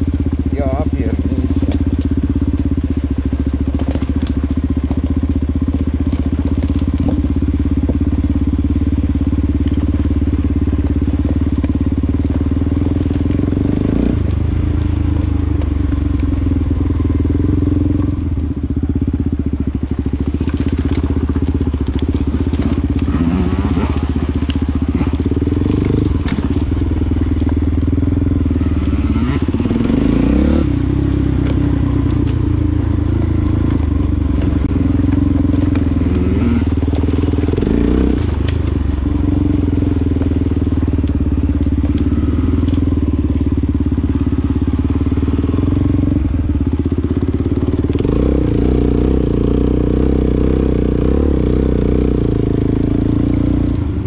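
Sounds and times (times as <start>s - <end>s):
off-road vehicle engine: 0.0s - 54.0s
knocks and crunches from ground: 0.8s - 17.4s, 19.5s - 45.4s.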